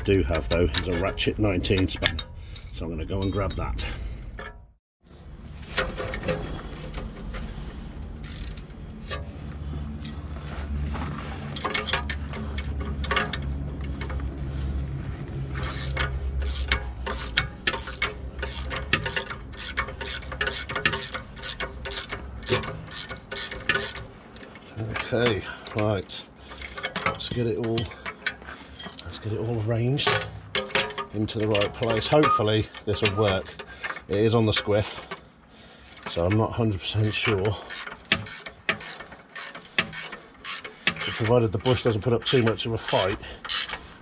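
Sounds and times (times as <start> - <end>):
ratchet spanner clicking: 8.2 - 9.2, 15.6 - 24.6, 37.0 - 42.6, 43.4 - 43.8.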